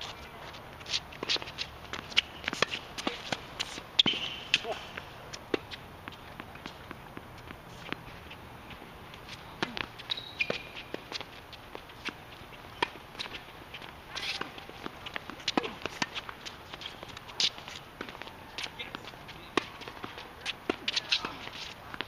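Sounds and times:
rackets hitting tennis ball: 0:00.0 - 0:22.0
shoe squeak: 0:04.0 - 0:04.8, 0:09.3 - 0:11.2, 0:14.1 - 0:14.8.

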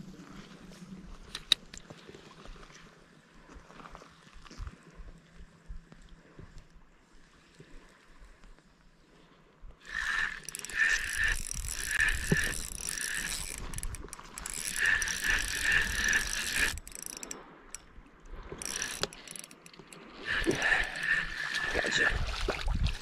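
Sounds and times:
fishing reel whirring and ticking: 0:09.8 - 0:17.9, 0:18.5 - 0:21.8.

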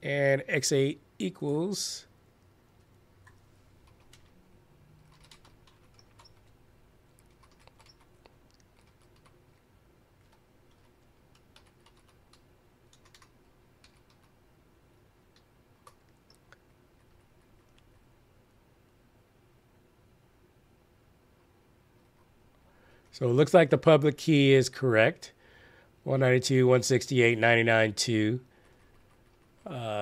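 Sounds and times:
low steady hum: 0:00.0 - 0:30.0
computer keyboard typing: 0:03.8 - 0:04.4, 0:05.0 - 0:09.4, 0:10.2 - 0:14.4, 0:15.3 - 0:17.8, 0:28.6 - 0:29.7.

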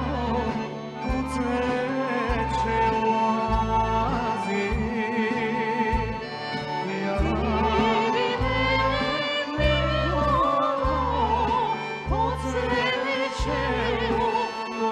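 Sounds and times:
live band playing: 0:00.0 - 0:14.9
man singing with vibrato: 0:00.0 - 0:14.9.

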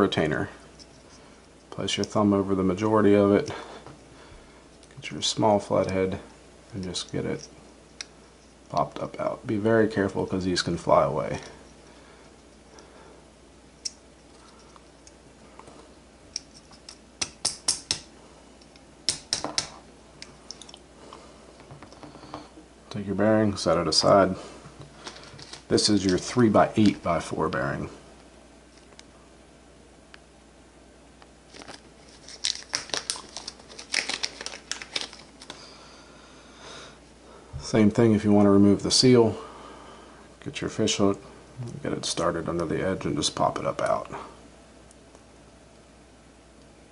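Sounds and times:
plastic bag crinkling: 0:31.5 - 0:35.6.

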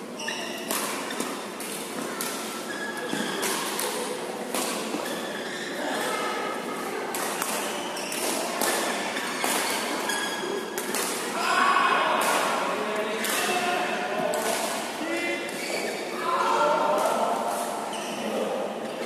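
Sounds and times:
shoes squeaking on court floor: 0:00.0 - 0:06.3, 0:07.2 - 0:11.0, 0:15.4 - 0:16.2, 0:17.5 - 0:19.0
racket hitting shuttlecock: 0:00.5 - 0:05.2, 0:07.1 - 0:11.3.

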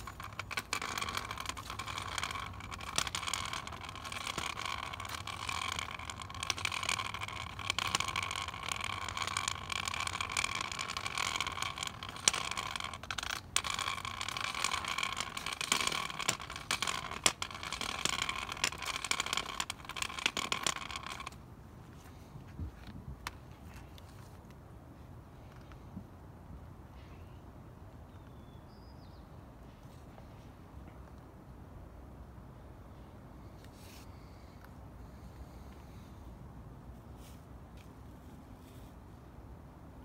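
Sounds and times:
rattles and clicks: 0:00.0 - 0:21.4.

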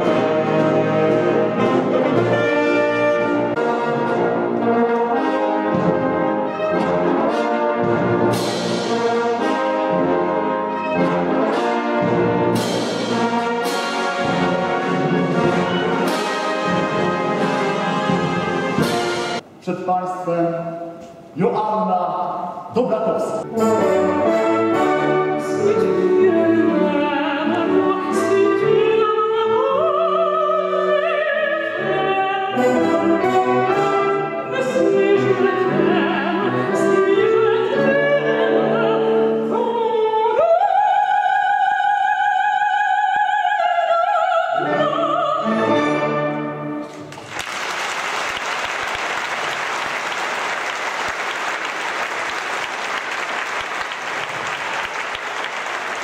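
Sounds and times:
orchestral accompaniment: 0:00.0 - 0:21.6, 0:22.6 - 0:47.4
woman singing classically: 0:25.4 - 0:33.4, 0:34.5 - 0:45.8
audience applauding: 0:47.1 - 0:56.0.

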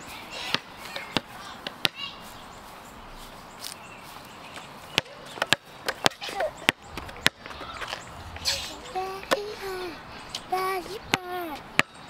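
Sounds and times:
outdoor background noise: 0:00.0 - 0:12.0
basketball bouncing on pavement: 0:00.4 - 0:02.1, 0:04.5 - 0:09.6, 0:10.8 - 0:12.0.

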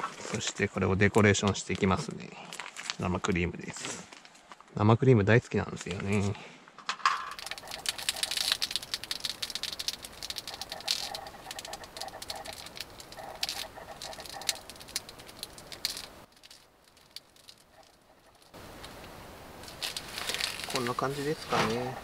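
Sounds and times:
cream spluttering from piping bag: 0:07.4 - 0:17.6.

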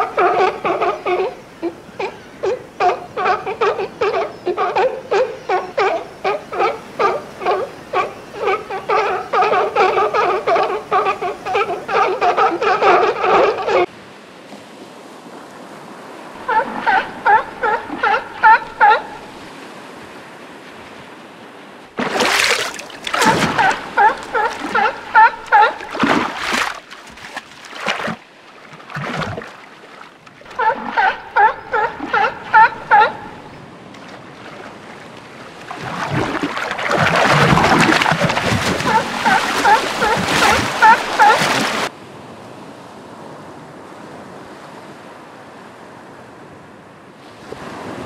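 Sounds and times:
seal barking: 0:00.0 - 0:13.9, 0:16.4 - 0:19.4, 0:22.3 - 0:26.6, 0:30.4 - 0:33.7, 0:35.6 - 0:41.9
water splashing: 0:00.0 - 0:13.9, 0:21.9 - 0:41.9.

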